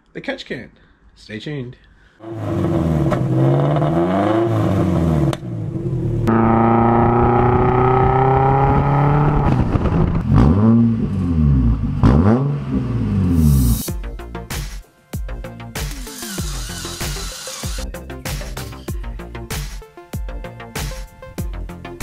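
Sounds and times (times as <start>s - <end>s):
car engines revving: 2.2s - 13.7s.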